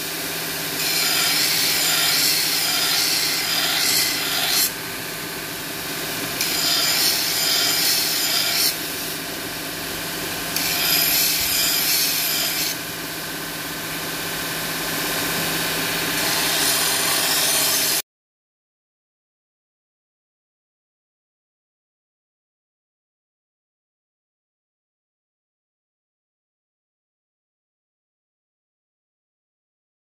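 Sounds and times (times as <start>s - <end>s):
belt grinder humming: 0.8s - 4.8s, 6.3s - 9.2s, 10.5s - 12.9s, 13.8s - 18.0s
knife grinding on abrasive belt: 0.8s - 4.8s, 6.4s - 9.1s, 10.6s - 12.8s, 16.2s - 18.0s.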